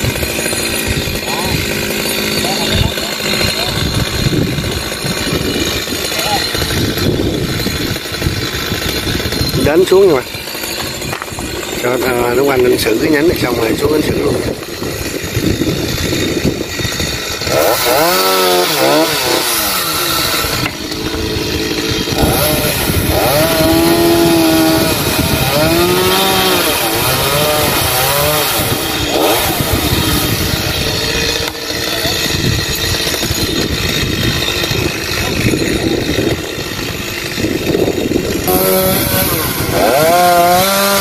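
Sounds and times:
chainsaw cutting wood: 0.0 - 41.0.

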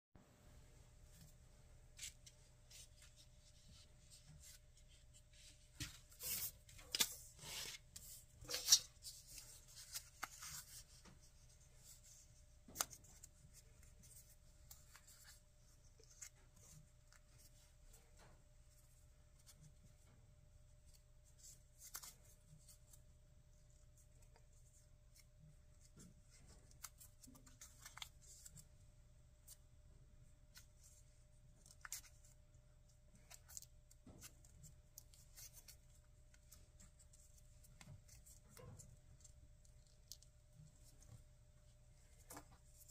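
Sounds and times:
paper crinkling and rustling: 1.1 - 17.8
paper crackling: 2.0 - 11.2.

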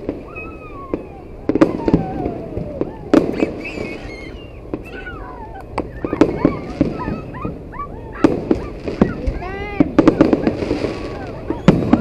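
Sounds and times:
fireworks bangs and crackles: 0.0 - 12.0
high-pitched wavering squeals: 0.2 - 7.5.

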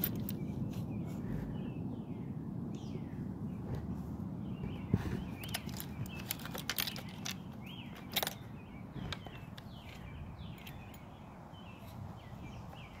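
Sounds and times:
low rumble of wind: 0.0 - 13.0
small birds chirping: 0.0 - 13.0.

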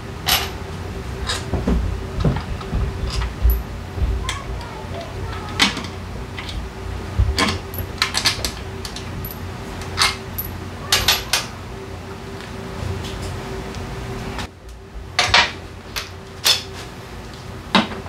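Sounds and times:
steady low hum: 0.0 - 18.0
metal parts clinking: 7.4 - 11.4.

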